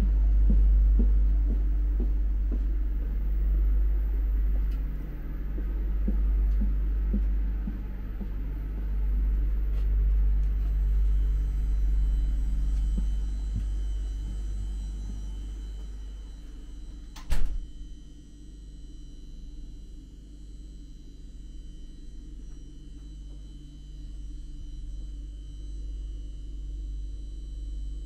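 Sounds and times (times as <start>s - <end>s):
train interior rumble: 0.0s - 17.5s
faint high whine: 0.0s - 28.0s.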